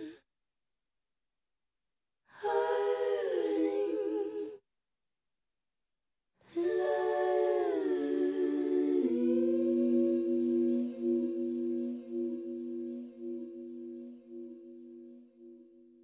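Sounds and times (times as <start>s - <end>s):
wordless hummed vocal: 6.5s - 14.5s.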